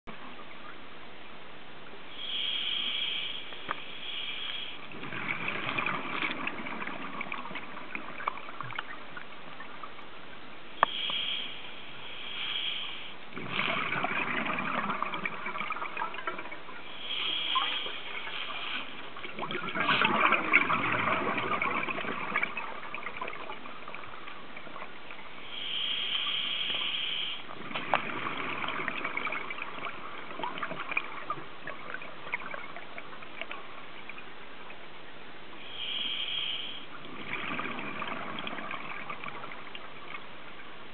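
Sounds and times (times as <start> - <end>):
regulator inhale hiss: 2.1 - 4.9, 10.8 - 13.2, 16.8 - 19.1, 25.4 - 27.5, 35.6 - 37.0
exhaled bubbles underwater: 4.8 - 10.0, 13.3 - 25.4, 26.2 - 34.9, 36.9 - 40.6.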